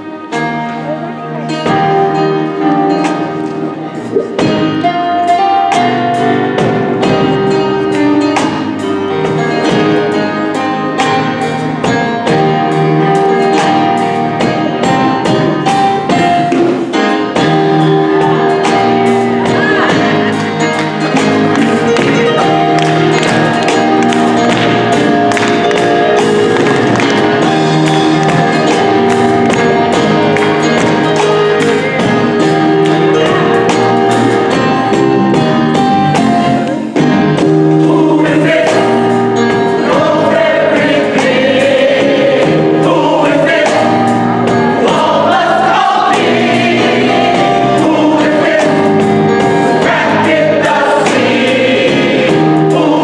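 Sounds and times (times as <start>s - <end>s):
bass guitar: 0.0s - 53.0s
drum kit: 1.5s - 53.0s
gospel choir singing: 11.9s - 35.1s, 35.7s - 53.0s
lead singer: 36.5s - 53.0s.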